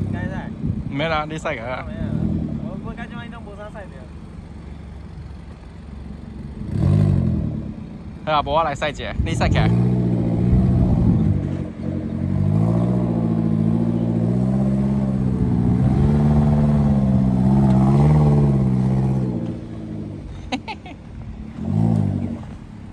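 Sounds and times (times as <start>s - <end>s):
car engine revving: 6.2s - 8.2s, 8.8s - 20.4s, 21.3s - 22.9s.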